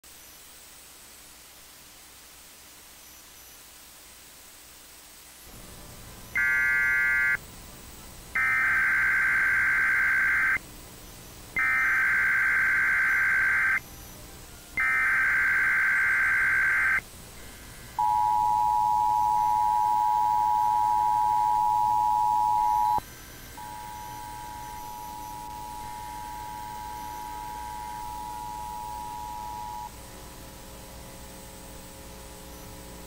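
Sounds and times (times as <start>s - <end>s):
screechy digital data tones: 6.4s - 7.4s, 8.4s - 10.6s, 11.6s - 13.9s, 14.8s - 17.0s, 18.0s - 29.9s
two-tone attention signal: 18.0s - 23.0s, 23.6s - 29.9s.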